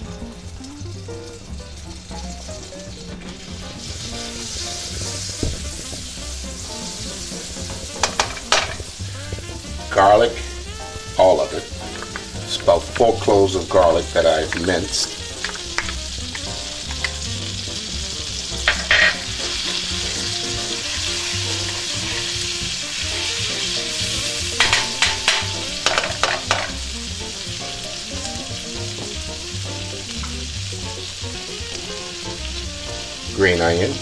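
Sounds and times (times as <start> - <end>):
garlic sizzling in butter: 0.0 - 34.0
wooden spoon scraping a pan: 3.1 - 17.3, 18.4 - 26.8.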